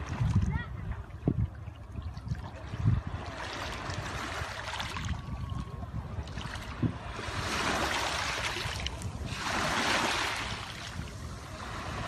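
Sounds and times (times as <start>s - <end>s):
wind rumble on microphone: 0.0s - 12.0s
waves washing over pebbles: 6.3s - 12.0s.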